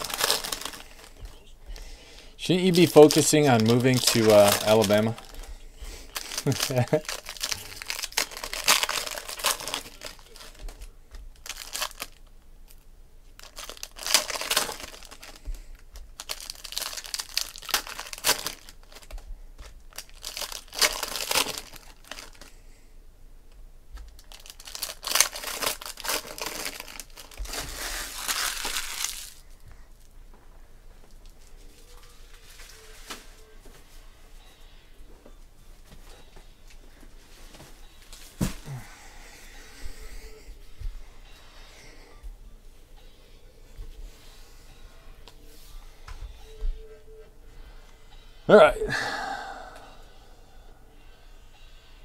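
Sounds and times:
foil wrappers crinkling and tearing: 0.0s - 1.5s, 2.4s - 12.8s, 13.4s - 22.6s, 24.0s - 29.6s, 31.1s - 33.4s.

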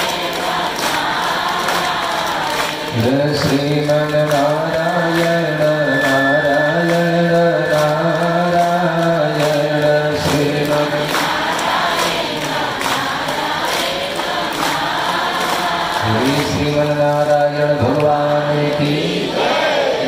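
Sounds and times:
man chanting long note: 2.9s - 11.2s.

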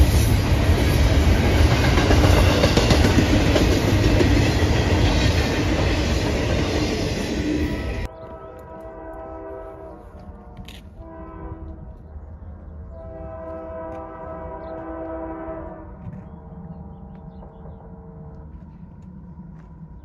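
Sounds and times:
train horn blasts: 7.6s - 12.0s, 12.9s - 16.1s
low rumble: 15.6s - 20.0s.

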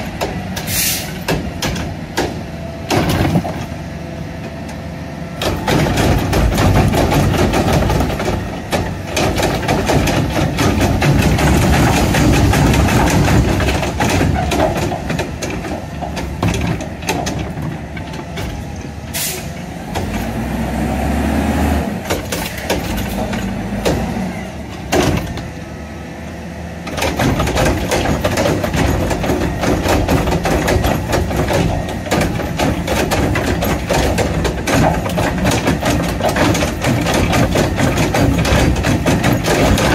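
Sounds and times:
truck engine revving: 17.7s - 27.3s.

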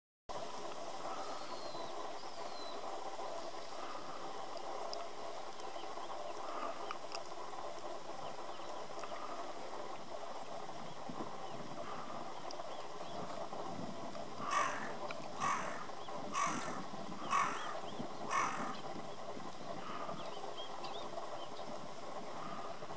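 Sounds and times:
outdoor background hum: 0.3s - 22.9s
faint high bird calls: 14.4s - 18.9s.

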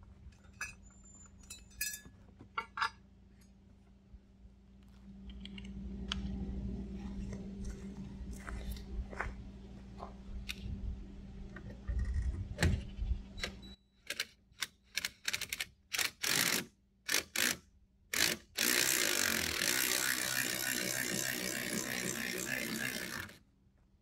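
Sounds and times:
fast continuous ratcheting: 18.2s - 23.4s.

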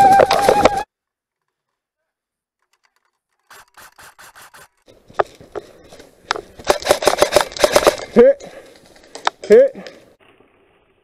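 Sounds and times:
airsoft guns firing: 6.6s - 8.1s.

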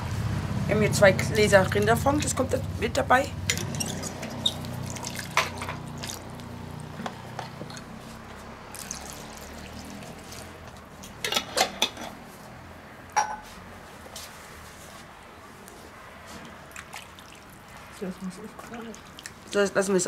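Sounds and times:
liquid pouring into a pot: 3.5s - 6.4s, 8.7s - 10.6s, 16.8s - 18.0s.

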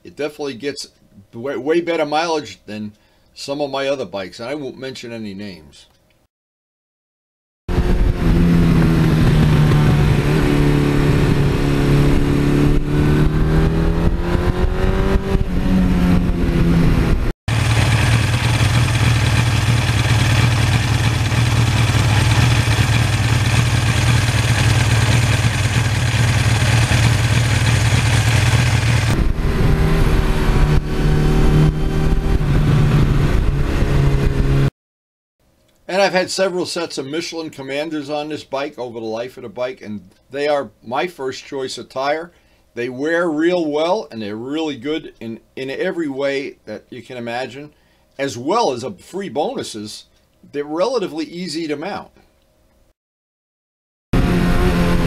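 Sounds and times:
motorcycle engine running: 7.7s - 34.7s.

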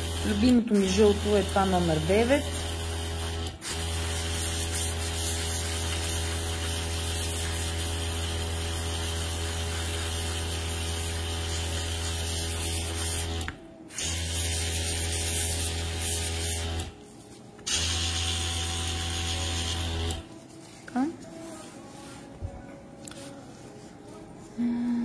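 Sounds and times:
airbrush hissing: 0.0s - 16.9s.

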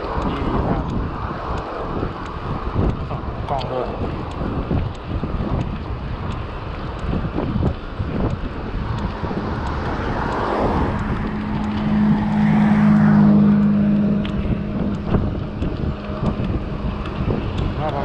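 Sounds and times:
wind buffeting microphone: 0.0s - 18.0s
vehicle engine passing: 8.6s - 18.0s.

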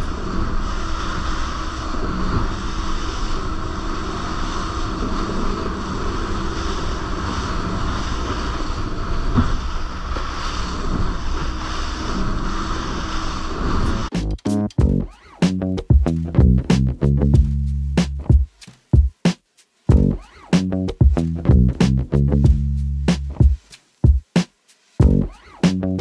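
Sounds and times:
hull wash and spray: 0.0s - 14.1s
motorboat engine drone: 0.0s - 14.1s.

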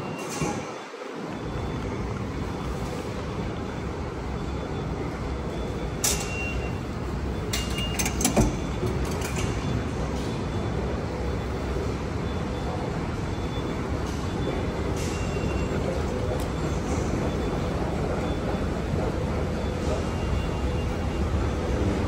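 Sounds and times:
card reader click and beep: 5.8s - 6.8s
low rumble of station: 6.6s - 22.0s
turnstile clunk: 7.5s - 9.7s.

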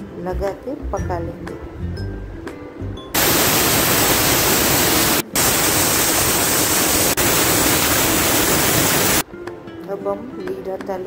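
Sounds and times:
pressure cooker whistle hissing: 3.2s - 9.2s.

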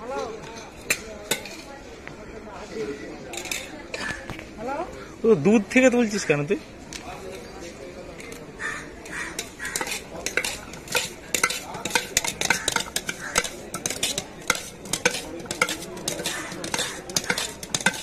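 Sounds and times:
spoon stirring in metal tumbler: 8.2s - 18.0s.

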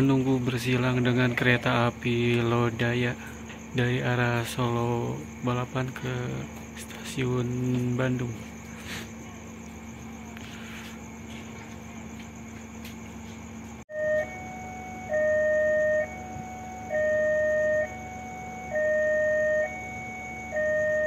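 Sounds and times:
low steady hum: 0.0s - 21.0s
railway warning alarm: 13.9s - 21.0s.

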